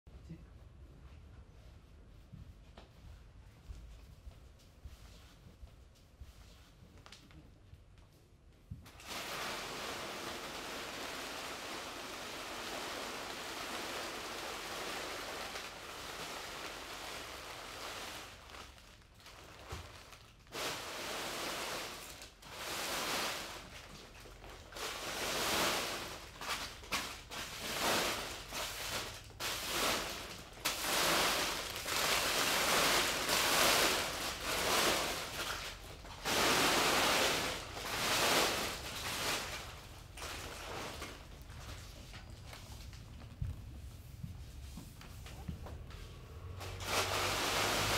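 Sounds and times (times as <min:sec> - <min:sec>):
wrappers crinkling and rustling: 0:08.8 - 0:44.1, 0:46.4 - 0:47.9.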